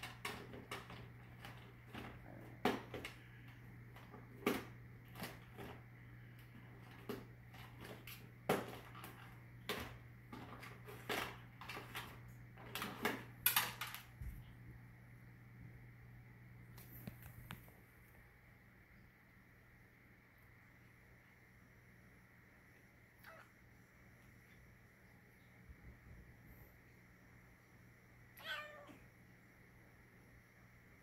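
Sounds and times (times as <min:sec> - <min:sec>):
objects clicking and rustling: 0:00.0 - 0:05.8, 0:06.6 - 0:14.3
low steady hum: 0:00.0 - 0:31.0.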